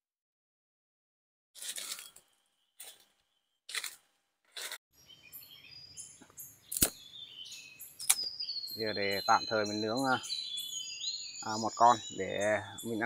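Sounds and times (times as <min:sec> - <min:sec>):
footsteps in dry leaves: 0:01.6 - 0:02.2
birds chirping: 0:05.0 - 0:13.0
twig snapping: 0:06.7 - 0:07.0, 0:08.0 - 0:08.3.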